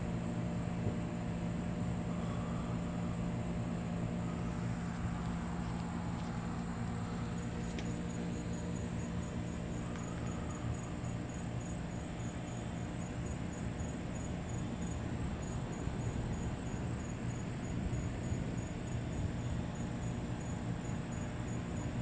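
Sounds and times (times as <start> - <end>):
insects chirping: 0.4 - 22.0
low hum: 1.9 - 13.5.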